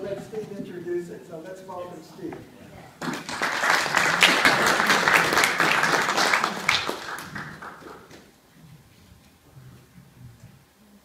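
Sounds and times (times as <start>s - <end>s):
audience applauding: 3.0s - 8.3s.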